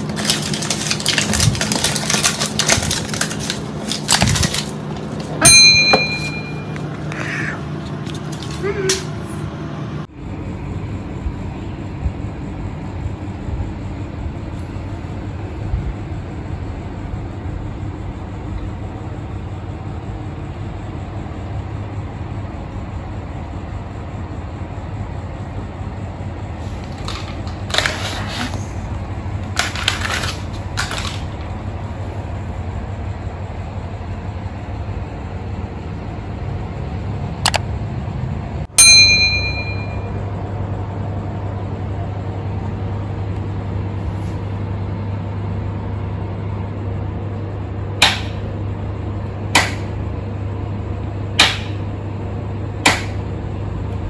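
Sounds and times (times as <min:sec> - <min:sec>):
handling noises: 0:00.0 - 0:09.2
low hum and hiss: 0:00.0 - 0:54.0.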